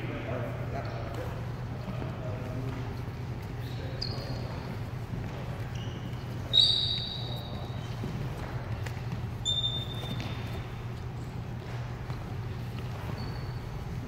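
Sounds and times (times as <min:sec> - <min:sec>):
steady low hum: 0:00.0 - 0:14.0
shoes squeaking on wooden floor: 0:03.6 - 0:14.0.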